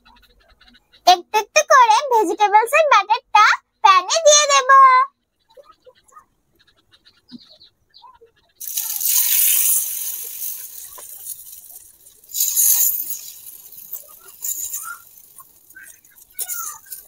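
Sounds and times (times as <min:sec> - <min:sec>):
batter sizzling in hot oil: 0:08.6 - 0:17.0.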